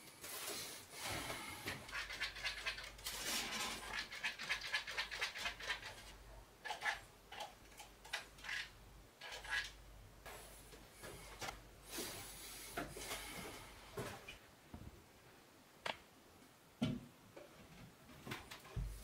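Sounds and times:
hands rubbing and rasping: 0:03.9 - 0:07.0.

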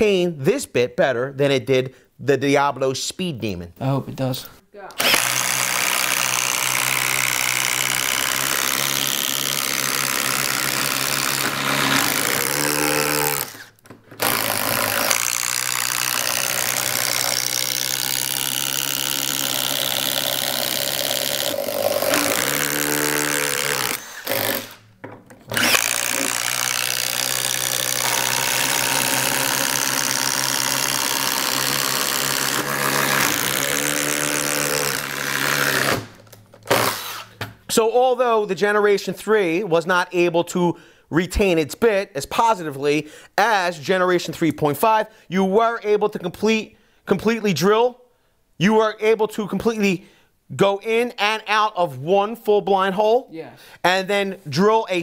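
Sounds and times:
impact drivers drilling into wood: 0:05.0 - 0:37.5.

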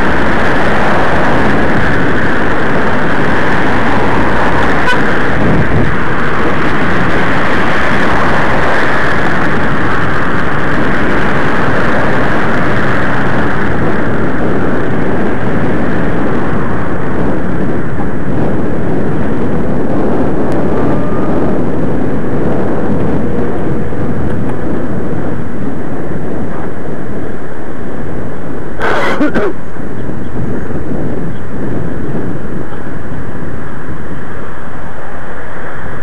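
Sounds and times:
road rumble: 0:00.0 - 0:36.0
wind buffeting microphone: 0:00.0 - 0:36.0.

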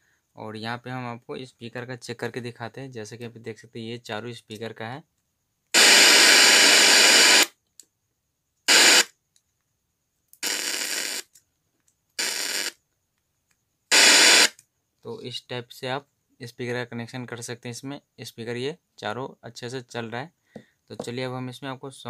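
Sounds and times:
radio static hiss bursts: 0:05.8 - 0:07.5, 0:08.7 - 0:09.1, 0:10.4 - 0:11.2, 0:12.2 - 0:12.7, 0:13.9 - 0:14.5.

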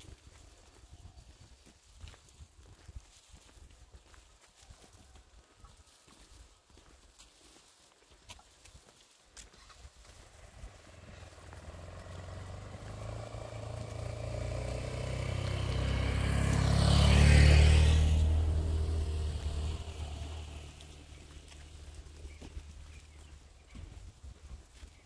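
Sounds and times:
motorcycle engine passing: 0:09.6 - 0:23.9.

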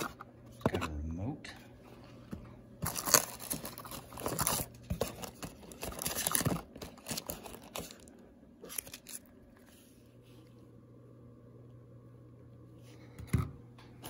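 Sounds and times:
plastic wrap and cardboard rustling: 0:02.8 - 0:10.0.

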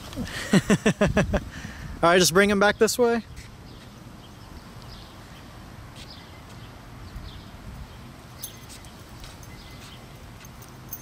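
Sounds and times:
small birds chirping faintly: 0:02.7 - 0:11.0.

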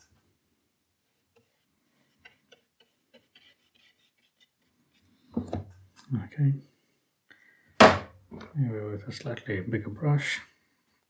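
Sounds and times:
paintbrush tapping and ticking: 0:01.3 - 0:04.3.

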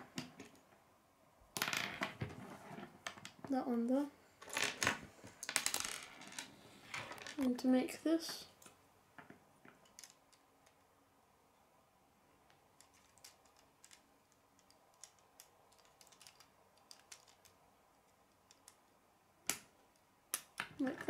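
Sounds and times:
plastic pieces clicking together: 0:09.8 - 0:10.8, 0:12.8 - 0:18.9.

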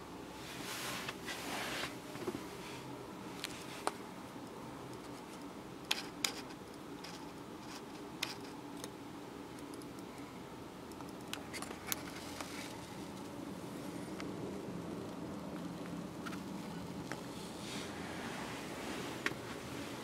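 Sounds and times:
faint steady hum: 0:00.0 - 0:20.0
clothing rustle: 0:00.4 - 0:03.9, 0:17.3 - 0:20.0
small clicks and ticks: 0:03.4 - 0:10.3, 0:10.9 - 0:13.4.

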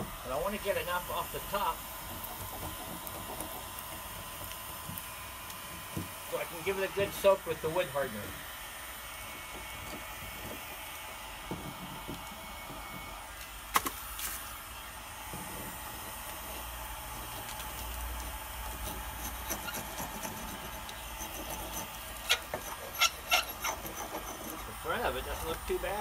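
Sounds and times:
heat gun fan blowing: 0:00.0 - 0:26.0
scraper clicking on wood: 0:18.8 - 0:24.8
metal scraper lifting paint: 0:18.8 - 0:25.9.

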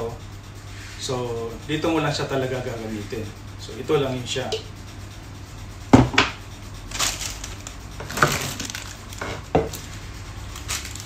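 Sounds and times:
plastic parts knocking on counter: 0:06.0 - 0:06.3, 0:08.0 - 0:09.8
plastic wrapping rustling: 0:06.8 - 0:11.0.

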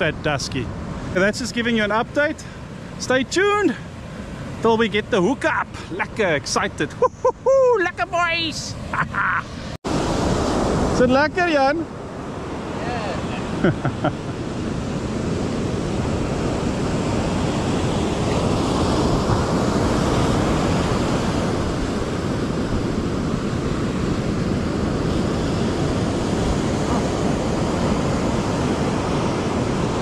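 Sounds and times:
surf breaking on beach: 0:00.0 - 0:30.0
wind rumbling on microphone: 0:06.8 - 0:30.0.

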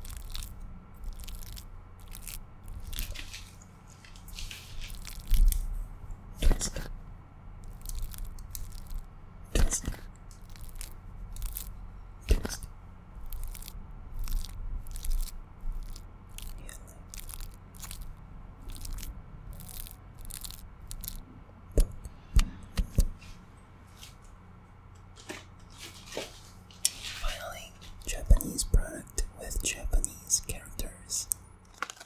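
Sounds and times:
crisp clicks and crackles: 0:00.0 - 0:05.8, 0:06.4 - 0:07.0, 0:07.6 - 0:21.2, 0:25.0 - 0:32.0
low electrical hum: 0:00.0 - 0:32.0.

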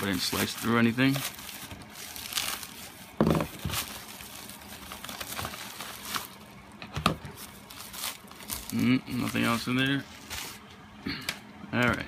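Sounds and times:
plastic mailer crinkling: 0:00.0 - 0:10.6.

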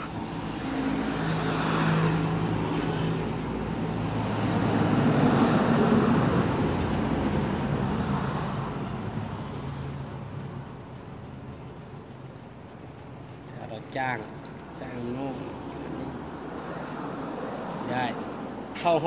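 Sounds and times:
vehicle engine passing by: 0:00.0 - 0:10.6.

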